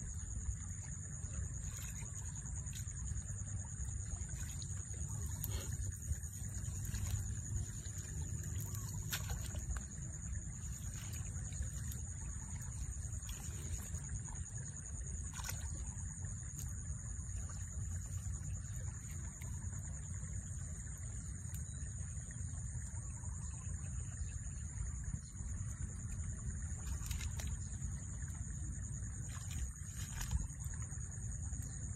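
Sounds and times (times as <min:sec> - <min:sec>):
high insect drone: 0:00.0 - 0:31.9
hands splashing in muddy water: 0:04.0 - 0:14.5, 0:15.2 - 0:16.8, 0:26.8 - 0:27.8, 0:29.2 - 0:31.0.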